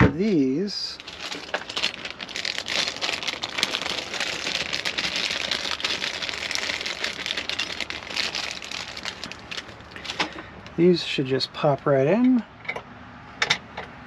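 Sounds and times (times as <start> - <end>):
plastic bag crinkling: 0.2 - 10.5.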